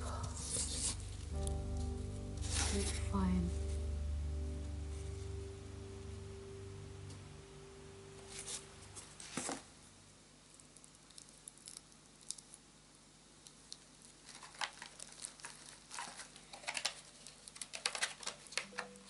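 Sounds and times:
plastic packaging crinkling: 13.5 - 19.0.

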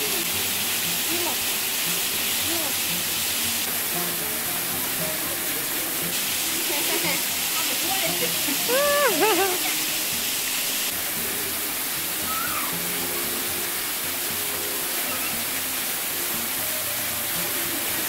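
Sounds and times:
waterfall rushing: 0.0 - 18.0
person giving high-pitched calls: 8.1 - 10.0.

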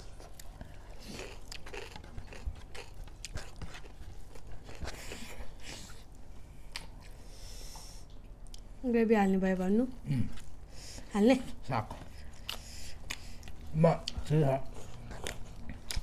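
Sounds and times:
close-up chewing and biting: 0.0 - 6.1, 12.0 - 16.0.

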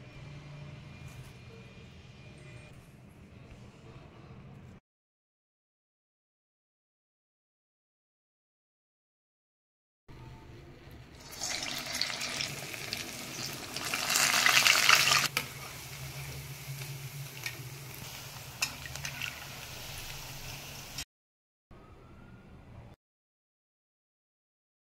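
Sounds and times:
batter frying in hot oil: 11.2 - 21.0.

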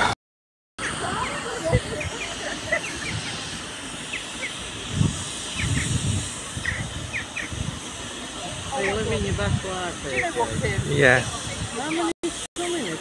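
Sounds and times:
small birds chirping: 0.8 - 3.4, 4.0 - 4.7, 5.4 - 7.6, 11.7 - 12.1
low exhaust puffs: 0.8 - 11.8
steam hissing: 0.8 - 13.0.

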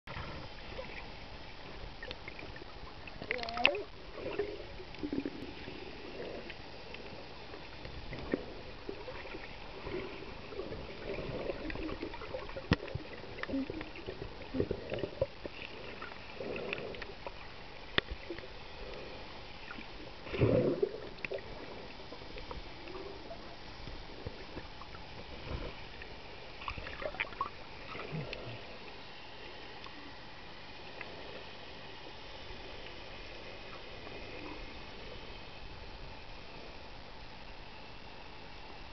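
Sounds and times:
bubbling gurgles: 0.1 - 19.1, 19.7 - 25.9, 26.6 - 28.8
muffled underwater hiss: 0.1 - 38.9
sharp underwater clicks: 3.2 - 3.9.

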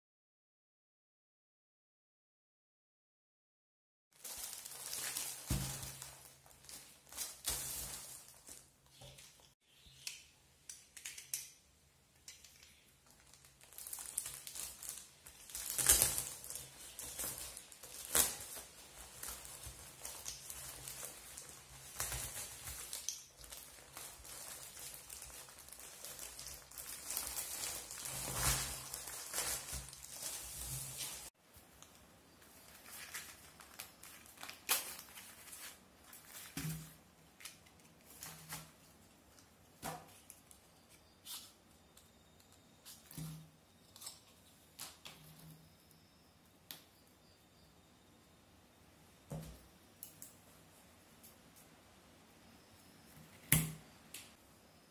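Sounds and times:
plastic wrap crinkling and tearing: 4.2 - 9.6, 12.8 - 32.0, 32.6 - 40.6.

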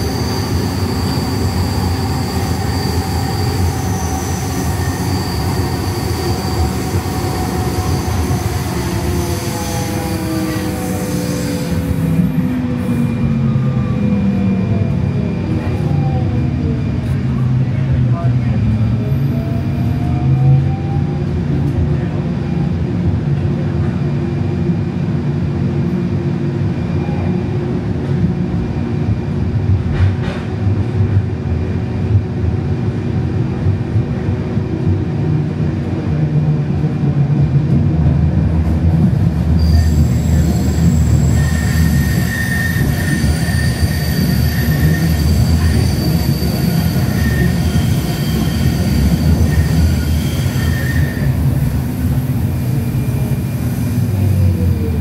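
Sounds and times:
train wheels rumbling on track: 0.0 - 55.0
high wheel squeal: 39.6 - 54.5.

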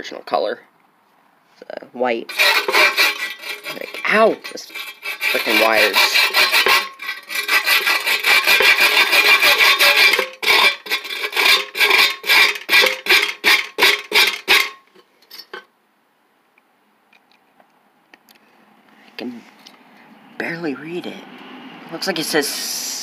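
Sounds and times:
hand scraping on steel: 2.3 - 15.6.

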